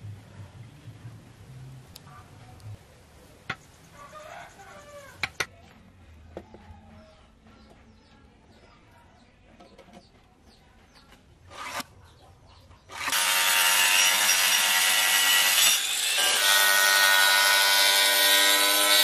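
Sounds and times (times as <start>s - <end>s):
angle grinder cutting wood: 11.5s - 11.8s, 12.9s - 19.0s.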